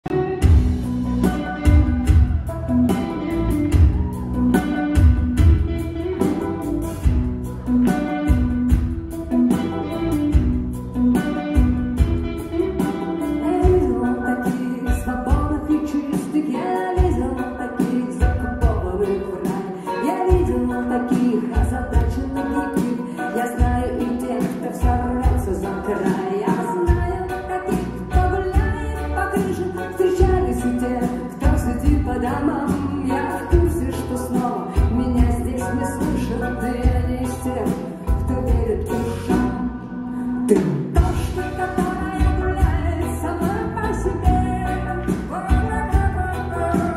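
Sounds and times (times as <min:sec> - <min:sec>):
electric guitar: 0:00.0 - 0:46.9
keyboards: 0:00.0 - 0:46.9
rock band playing: 0:00.0 - 0:46.9
woman singing into a microphone: 0:12.4 - 0:46.9.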